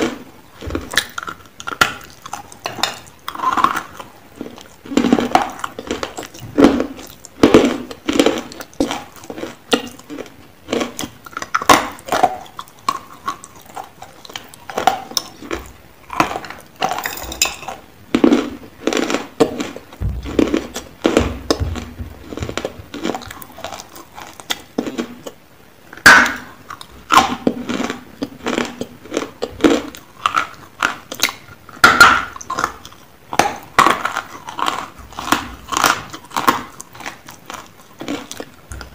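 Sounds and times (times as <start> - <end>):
crunching and chewing: 0.0 - 25.4, 26.2 - 38.9
metal bowl clinks: 17.0 - 17.7.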